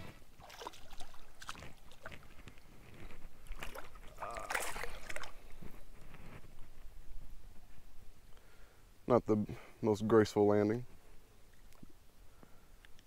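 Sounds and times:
water splashing and sloshing: 0:00.0 - 0:07.3
fish thrashing at surface: 0:03.4 - 0:05.7.

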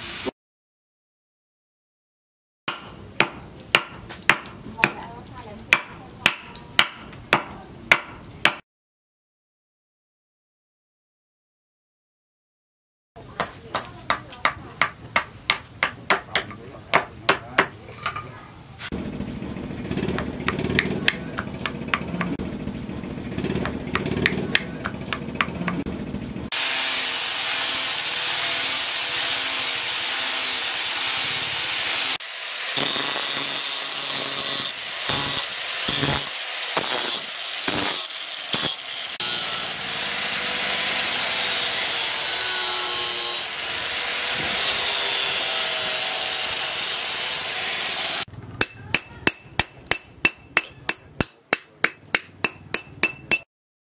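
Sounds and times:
hand tool striking wood: 0:02.7 - 0:05.1, 0:05.7 - 0:08.6, 0:13.4 - 0:17.8, 0:20.1 - 0:22.4, 0:23.5 - 0:25.9, 0:48.6 - 0:53.5
angle grinder cutting steel: 0:19.8 - 0:22.4, 0:23.1 - 0:25.8, 0:26.5 - 0:53.4.

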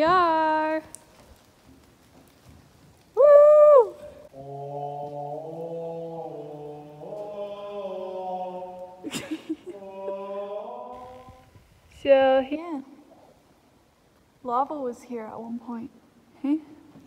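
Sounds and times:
chant-like singing: 0:04.3 - 0:11.6.

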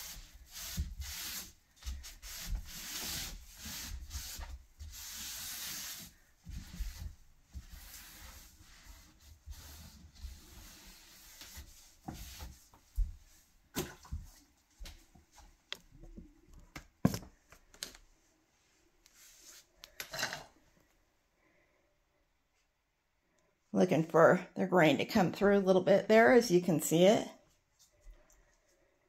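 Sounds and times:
hand sanding wood: 0:00.0 - 0:13.2.

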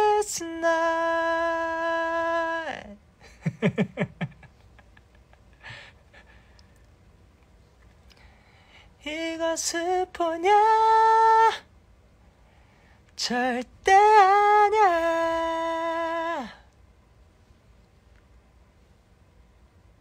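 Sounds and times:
man singing unaccompanied: 0:00.0 - 0:03.0, 0:09.0 - 0:11.7, 0:13.2 - 0:16.6.

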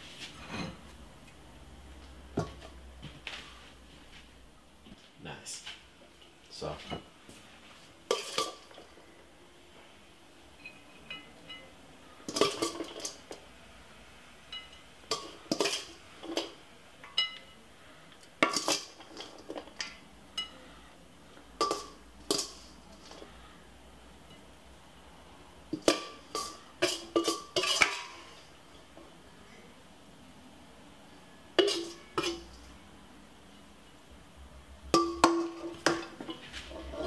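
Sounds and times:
utensil clinking on metal bowl: 0:08.1 - 0:08.9, 0:10.6 - 0:13.4, 0:14.5 - 0:17.6, 0:18.4 - 0:20.6, 0:21.6 - 0:23.3, 0:25.7 - 0:28.4, 0:31.6 - 0:32.7, 0:34.9 - 0:37.0.

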